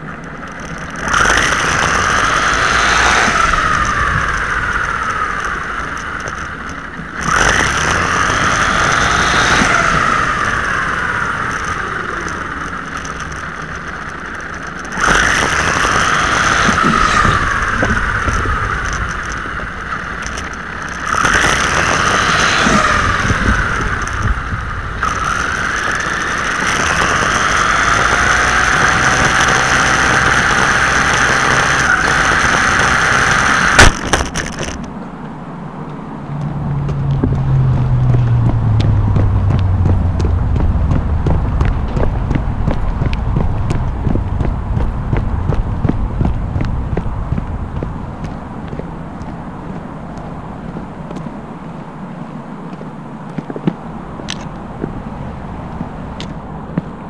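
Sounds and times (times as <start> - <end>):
electric motor whining: 0.3 - 34.9.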